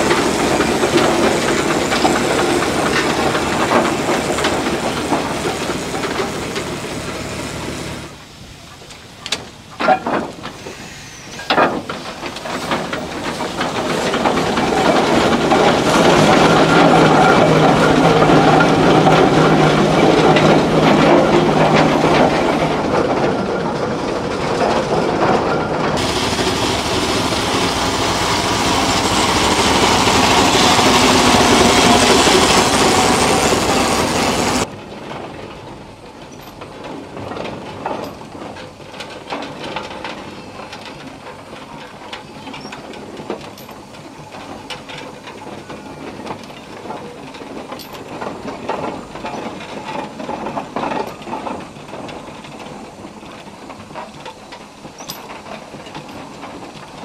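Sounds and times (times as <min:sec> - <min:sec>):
steam hiss: 0:00.0 - 0:22.7, 0:26.0 - 0:34.7
steam traction engine running: 0:00.0 - 0:57.0
vertical-boiler steam engine: 0:00.0 - 0:57.0.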